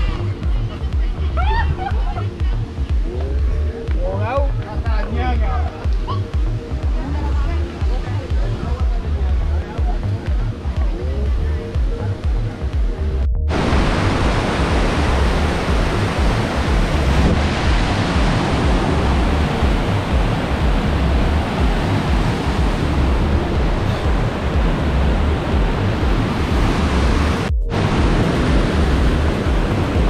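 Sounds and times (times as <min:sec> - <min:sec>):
heavy low rumble: 0:00.0 - 0:30.0
water rushing: 0:00.0 - 0:30.0
wind buffeting microphone: 0:12.3 - 0:30.0.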